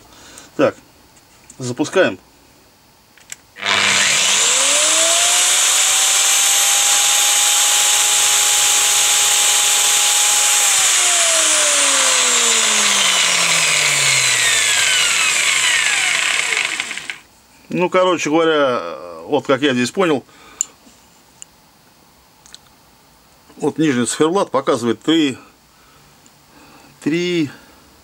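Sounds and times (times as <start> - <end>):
angle grinder whining: 3.6 - 17.3.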